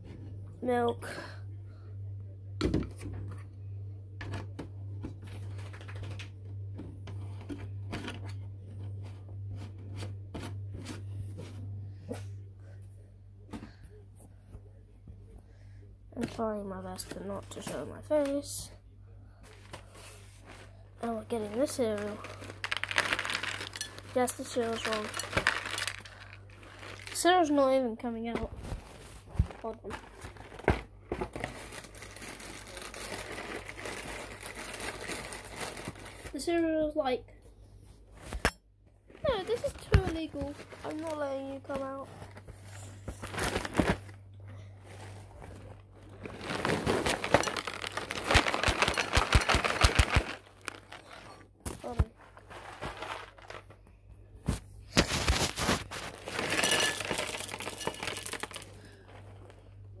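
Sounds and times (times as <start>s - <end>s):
plastic bag crinkling: 19.5s - 27.8s, 28.6s - 36.5s, 42.7s - 53.9s, 54.9s - 59.6s
cereal pouring into bowl: 22.0s - 27.3s, 55.2s - 58.8s.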